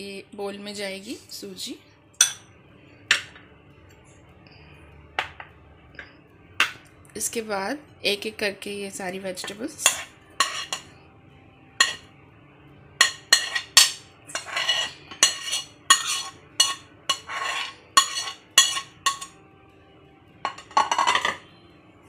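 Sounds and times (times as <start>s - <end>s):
spoon scraping glass plate: 9.8s - 10.9s, 11.8s - 12.0s, 13.0s - 19.4s, 20.5s - 21.4s
spoon clinking on glass: 13.0s - 19.4s, 20.5s - 21.4s.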